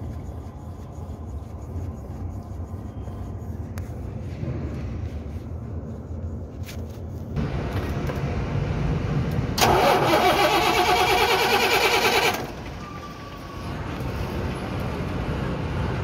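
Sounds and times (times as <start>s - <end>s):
diesel engine rumble: 0.0s - 16.0s
starter motor cranking engine: 9.6s - 12.5s.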